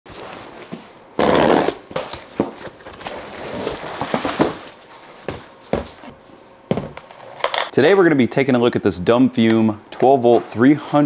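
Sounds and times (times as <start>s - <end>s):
cardboard rush: 1.3s - 5.2s
box flaps and packaging rustling: 1.9s - 5.2s.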